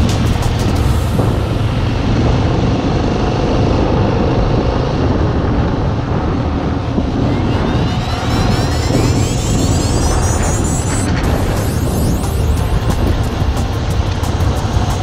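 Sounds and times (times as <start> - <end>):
motorcycle engine running: 0.0 - 15.0
wind rush on microphone: 0.0 - 15.0
rising high tones: 6.2 - 14.7.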